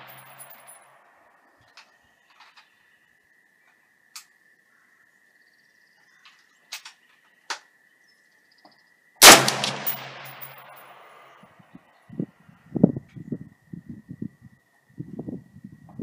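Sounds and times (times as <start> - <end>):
rifle shot: 9.2 - 10.8.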